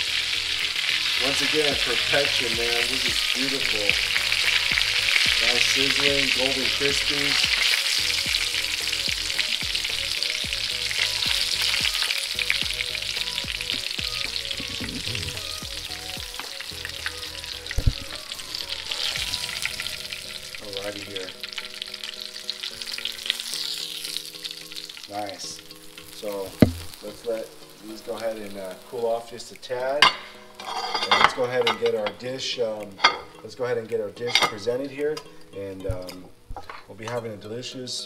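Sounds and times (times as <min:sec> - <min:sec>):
fish sizzling in frying pan: 0:00.0 - 0:36.8.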